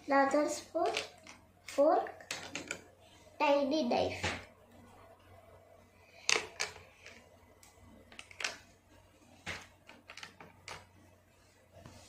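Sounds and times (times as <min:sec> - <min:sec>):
plastic toy pieces clicking: 0:00.8 - 0:01.4.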